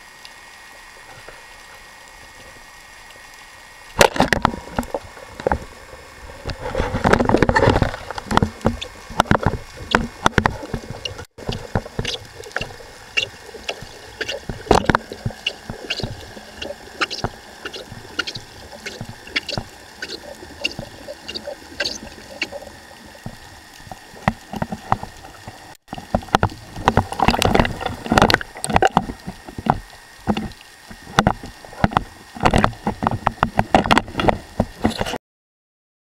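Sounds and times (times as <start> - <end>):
water hiss: 0.0 - 33.0
rushing water and bubbles: 0.0 - 35.2
sharp underwater clicks: 7.1 - 35.1.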